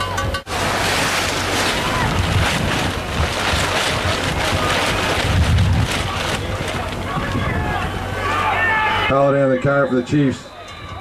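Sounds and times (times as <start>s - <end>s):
wind buffeting microphone: 0.3s - 8.2s.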